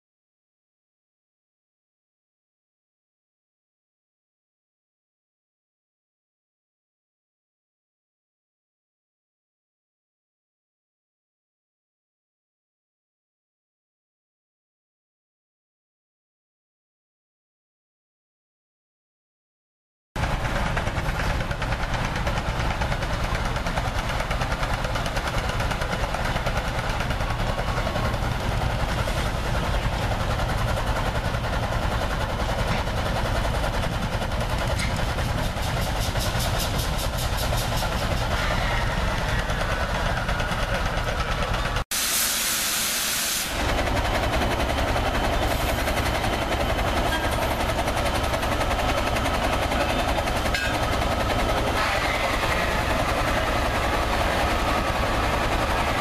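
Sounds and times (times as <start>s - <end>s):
steam engines running: 20.2s - 56.0s
steam hissing: 41.9s - 44.3s.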